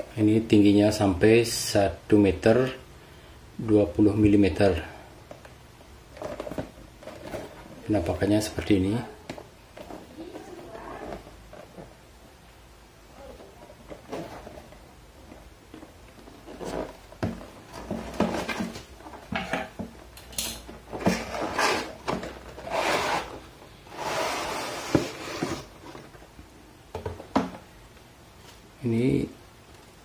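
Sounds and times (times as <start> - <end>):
cardboard box scrapes and knocks: 20.9 - 26.0
bag sliding out of box: 21.0 - 25.8.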